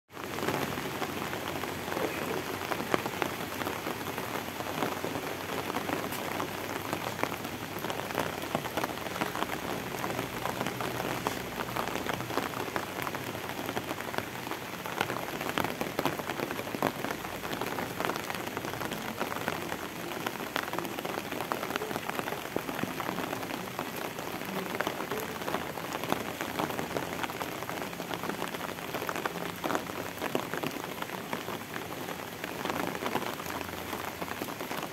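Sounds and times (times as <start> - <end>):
rain drops pattering: 0.1 - 34.9
steady rain falling: 0.1 - 34.9.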